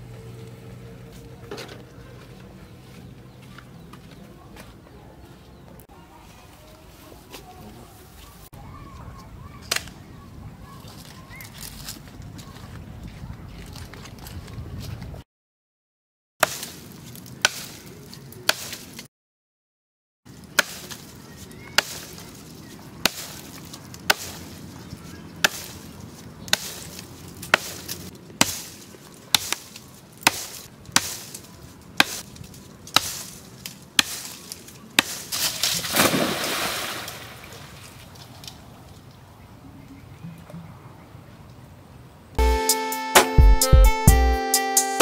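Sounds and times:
axe chopping into tree trunk: 16.4 - 17.8, 18.5 - 18.9, 20.6 - 21.1, 21.8 - 22.2, 23.0 - 24.5, 25.4 - 25.8, 26.5 - 31.4, 32.0 - 32.3, 32.9 - 33.4, 34.0 - 37.0
tree trunk crashing into water: 35.3 - 38.1.

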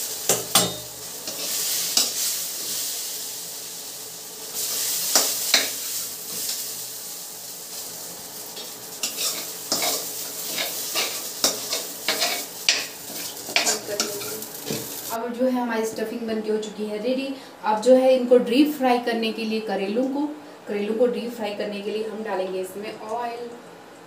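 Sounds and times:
hot pan sizzling: 0.0 - 15.2
metal spatula scraping pans: 8.6 - 15.0.

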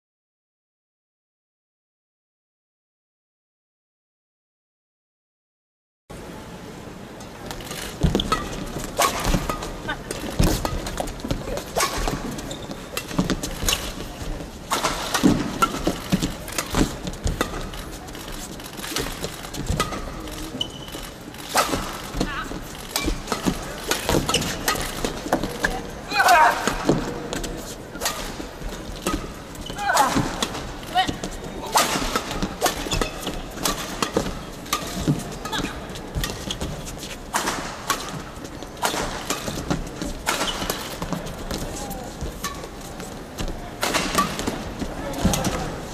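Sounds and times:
indoor arena hum: 6.1 - 45.9
rackets hitting shuttlecock: 7.5 - 14.1, 14.7 - 18.0, 18.8 - 42.8, 43.4 - 45.8
shoe squeaks on court: 12.0 - 13.0, 19.8 - 21.9.

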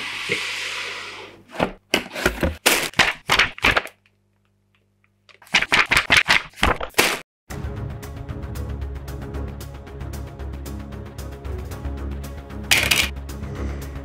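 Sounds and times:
booklet pages flipping: 1.9 - 4.2, 5.1 - 7.2.

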